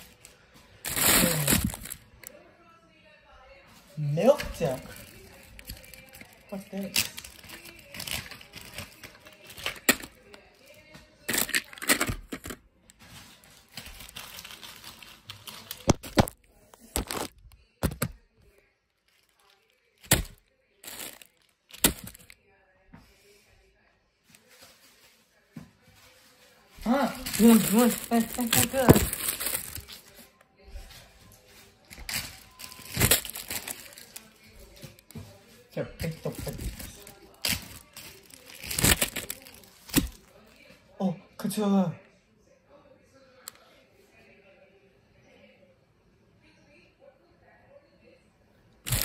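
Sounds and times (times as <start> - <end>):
plastic candy wrappers crinkling: 0.0 - 2.3, 4.4 - 18.2, 19.0 - 22.4, 26.8 - 30.2, 31.8 - 35.2, 36.0 - 40.4.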